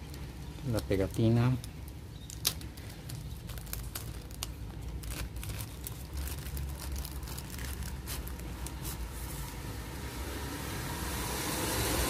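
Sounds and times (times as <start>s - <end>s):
plastic wrapping crinkling: 0.0s - 9.6s
steady low rumble: 0.0s - 12.0s.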